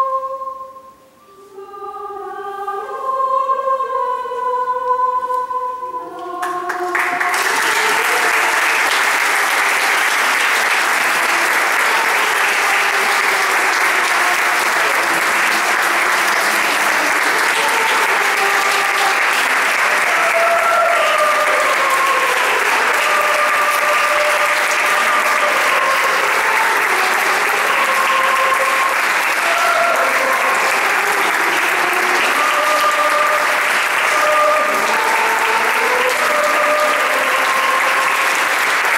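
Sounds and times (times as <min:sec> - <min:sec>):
children's choir holding chord: 0:00.0 - 0:38.9
audience applause: 0:06.4 - 0:38.9.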